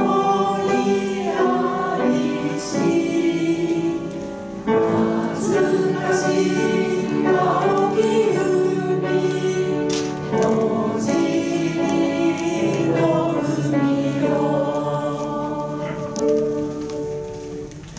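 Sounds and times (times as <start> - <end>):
group singing slow song: 0.0 - 17.5
piano accompaniment: 0.0 - 17.9.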